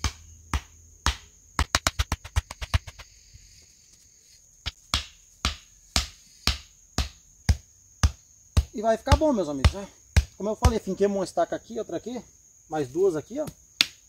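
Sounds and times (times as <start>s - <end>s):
stakes pounded into ground: 0.0s - 3.2s, 4.6s - 10.8s
insect buzzing: 0.0s - 14.0s.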